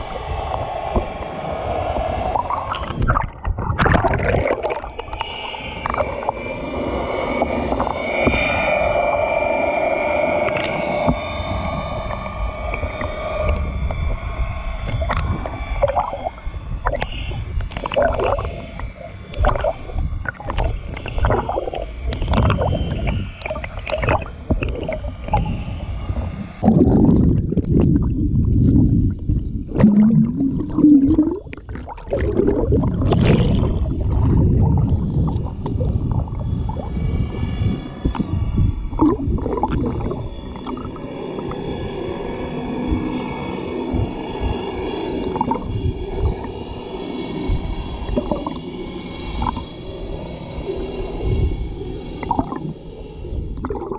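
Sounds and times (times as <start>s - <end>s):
low underwater rumble: 0.0s - 53.9s.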